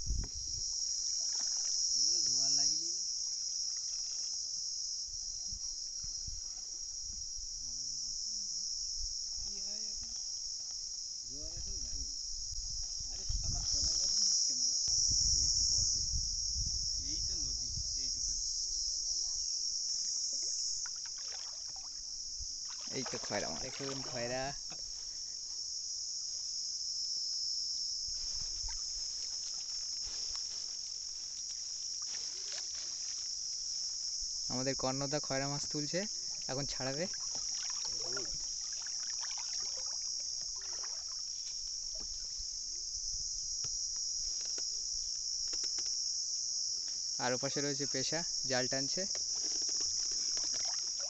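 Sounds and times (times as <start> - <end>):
shrill insect chorus: 0.0 - 51.0
water splashes and drips: 0.9 - 1.9, 20.8 - 22.0, 22.6 - 24.4, 36.8 - 42.3, 49.6 - 51.0.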